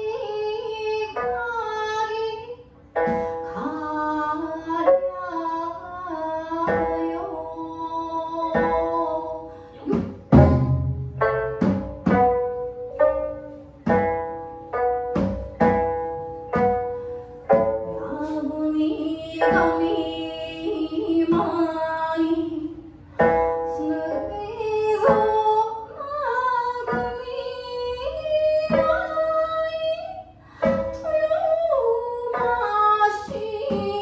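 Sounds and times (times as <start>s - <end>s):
woman singing: 0.0s - 10.9s, 17.8s - 34.0s
plucked lute notes: 0.0s - 34.0s.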